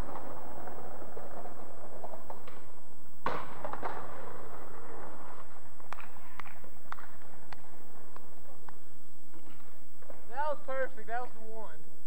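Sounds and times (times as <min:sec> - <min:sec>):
skateboard clack: 0:00.0 - 0:10.4
skateboard wheels rolling on asphalt: 0:00.0 - 0:10.5.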